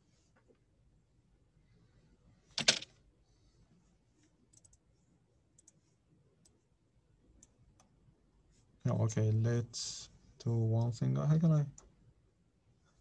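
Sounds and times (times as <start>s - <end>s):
computer mouse and keyboard clicks: 4.5s - 4.8s.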